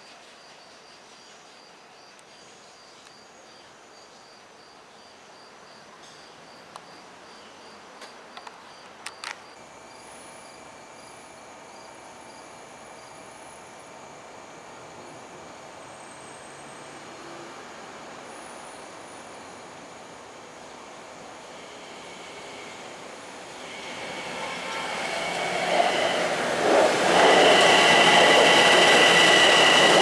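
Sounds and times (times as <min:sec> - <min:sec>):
cricket chirping: 0:00.0 - 0:30.0
faint high whine: 0:08.4 - 0:30.0.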